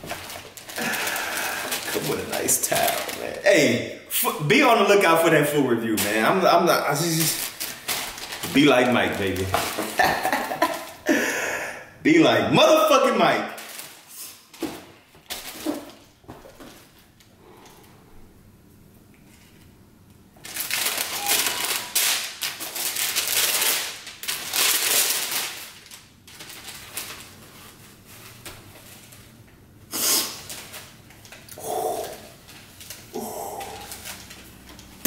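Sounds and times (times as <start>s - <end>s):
tissue paper rustling: 0.0s - 3.4s, 7.0s - 11.0s, 13.6s - 17.0s, 20.4s - 29.3s.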